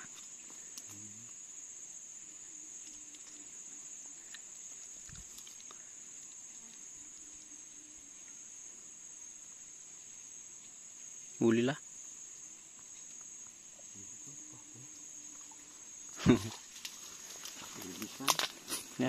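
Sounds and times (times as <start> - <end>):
insect chorus drone: 0.0 - 19.0
faint clicks: 0.1 - 1.0, 4.2 - 6.9.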